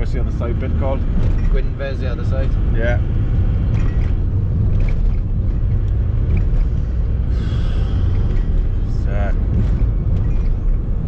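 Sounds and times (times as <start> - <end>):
van engine and road rumble: 0.0 - 11.0.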